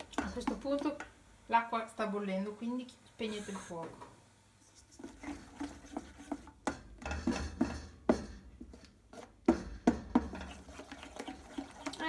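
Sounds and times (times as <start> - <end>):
spatula scraping a metal bowl: 4.7 - 7.8, 10.3 - 12.0.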